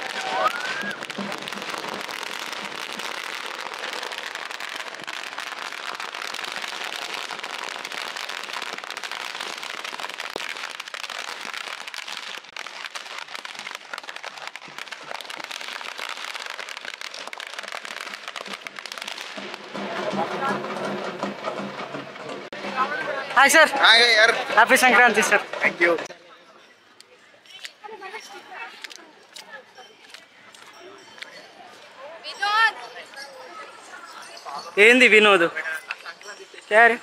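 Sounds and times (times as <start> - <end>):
firecrackers crackling: 0.0 - 37.0.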